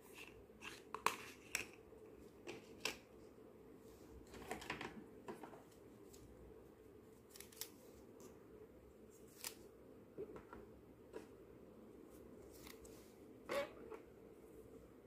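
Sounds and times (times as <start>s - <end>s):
faint room hiss: 0.0s - 15.0s.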